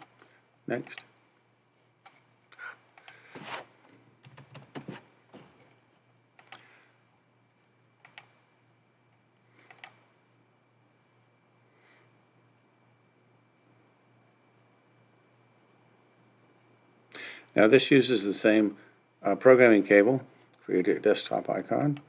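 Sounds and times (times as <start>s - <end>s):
low steady hum: 0.0s - 22.0s
mouse and keyboard clicks: 8.0s - 8.3s.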